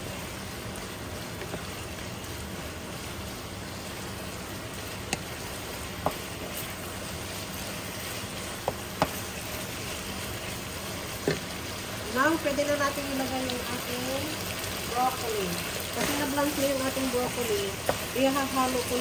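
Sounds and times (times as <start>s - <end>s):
meat sizzling in a frying pan: 0.0s - 19.0s
spatula knocking against pan: 8.6s - 9.2s
spatula stirring: 15.6s - 19.0s.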